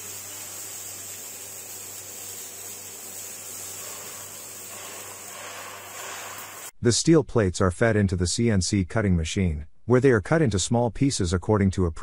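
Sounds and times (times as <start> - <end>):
cutting torches hissing: 0.0 - 6.8.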